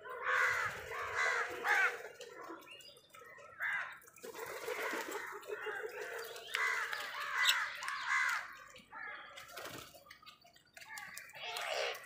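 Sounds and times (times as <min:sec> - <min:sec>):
crows cawing: 0:00.0 - 0:02.5, 0:03.4 - 0:09.4, 0:10.9 - 0:12.0.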